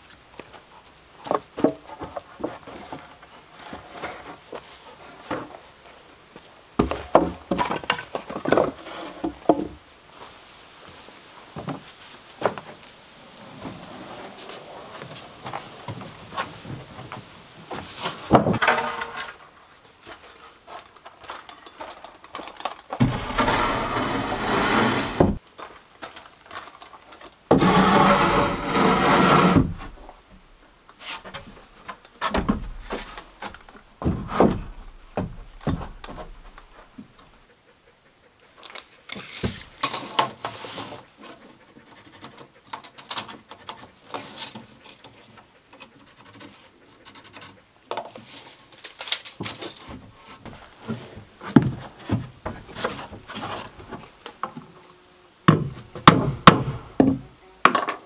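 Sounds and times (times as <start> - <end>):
dense woodworking noise: 0.4 - 25.8, 26.4 - 58.0
knocks of wood and tools: 6.8 - 9.8, 31.2 - 37.1, 49.4 - 54.7, 55.5 - 58.0.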